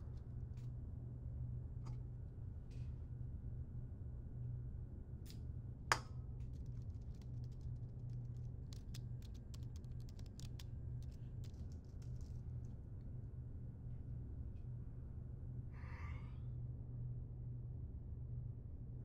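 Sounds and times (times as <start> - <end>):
typing on laptop keyboard: 6.7 - 12.4.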